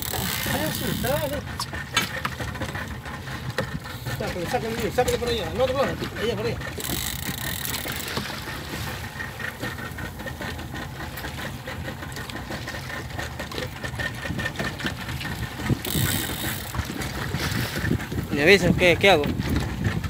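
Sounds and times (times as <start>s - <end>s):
outboard motor idling: 0.0s - 20.0s
wind gust on microphone: 15.5s - 20.0s.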